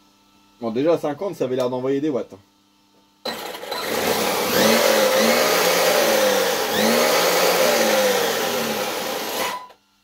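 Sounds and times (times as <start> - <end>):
toy truck motor whining: 3.3 - 9.7.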